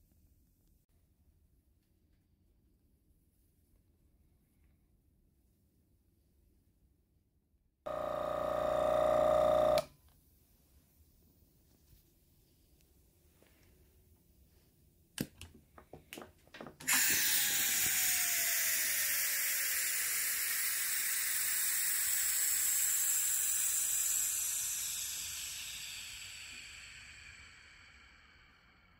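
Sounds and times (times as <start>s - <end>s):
compressed air hissing out: 16.9s - 28.9s.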